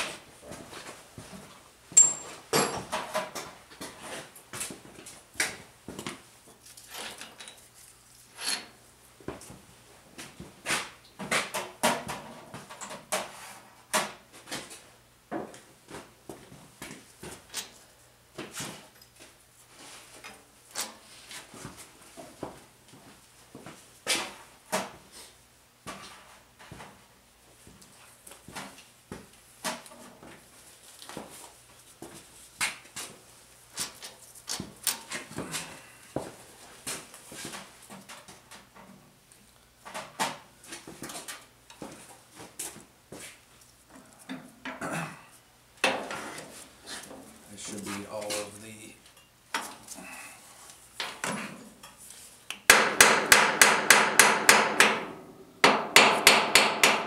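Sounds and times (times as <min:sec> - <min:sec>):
metallic clinks of hand tools: 0:02.0 - 0:02.8
metal tools and bolts clinking: 0:02.0 - 0:02.9, 0:06.6 - 0:07.7.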